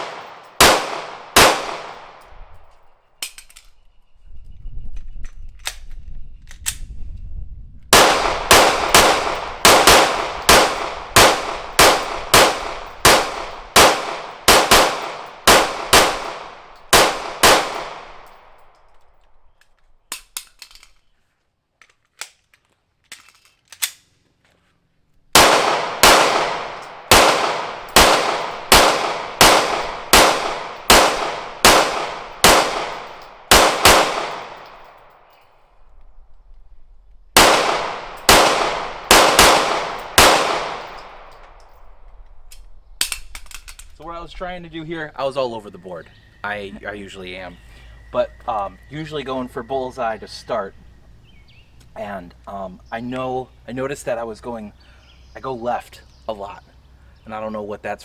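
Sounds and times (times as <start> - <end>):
pistol shots: 0.0 - 2.3, 7.9 - 18.7, 25.3 - 35.1, 37.4 - 41.5
faint pistol handling clicks: 2.0 - 3.9, 18.2 - 21.1, 21.8 - 24.2, 40.0 - 44.0.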